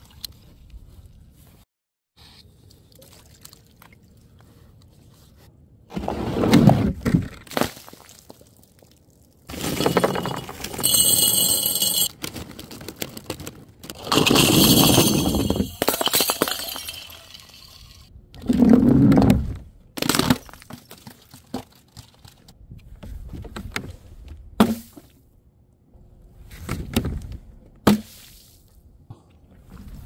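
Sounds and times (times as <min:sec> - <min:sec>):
glass smashing: 0:14.0 - 0:18.1
shards of glass scattering: 0:14.0 - 0:18.1.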